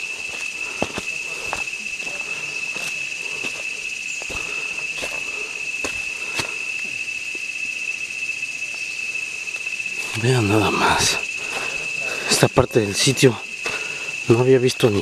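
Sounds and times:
footsteps on dry leaves: 0.0s - 7.0s
insects buzzing: 0.0s - 15.0s.

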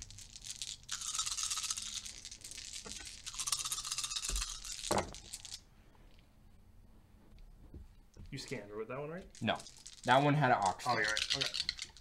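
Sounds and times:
plastic dice rattling in hand: 0.0s - 5.6s, 9.3s - 12.0s.

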